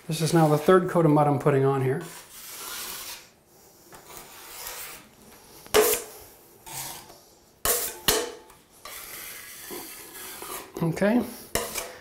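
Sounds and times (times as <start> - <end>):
drywall knife scraping: 1.8 - 3.4, 4.0 - 5.1, 5.7 - 8.0, 8.8 - 12.0.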